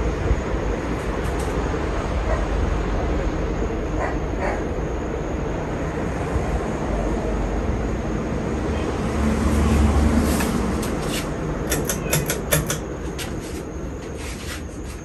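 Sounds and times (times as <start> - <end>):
ceiling fan running: 9.6 - 15.0.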